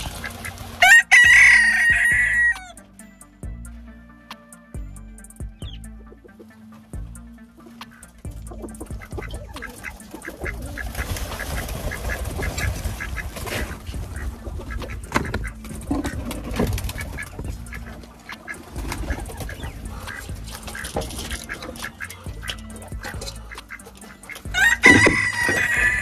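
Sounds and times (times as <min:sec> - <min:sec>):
ducks quacking: 0:00.0 - 0:03.8, 0:04.4 - 0:26.0
low rumble: 0:10.4 - 0:23.6.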